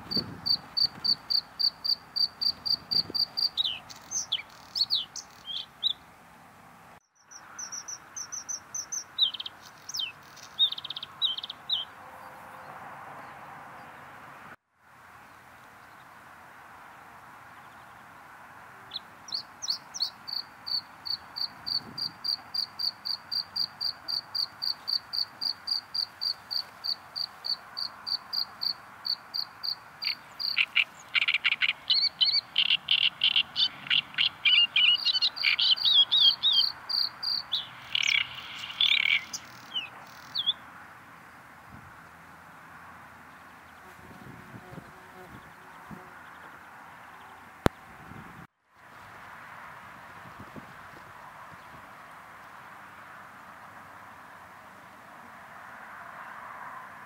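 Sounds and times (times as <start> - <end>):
bird singing high notes: 30.0 - 40.6.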